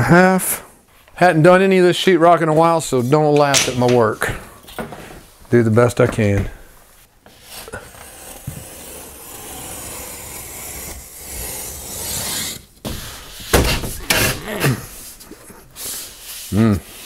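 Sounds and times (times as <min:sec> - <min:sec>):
utility knife scraping drywall: 0:07.3 - 0:17.0.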